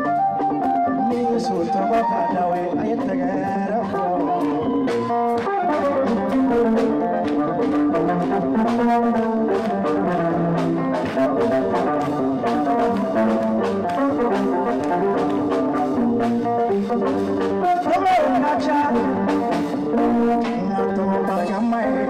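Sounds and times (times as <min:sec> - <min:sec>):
brass melody: 0:00.0 - 0:22.0
steady drum beat: 0:00.0 - 0:22.0.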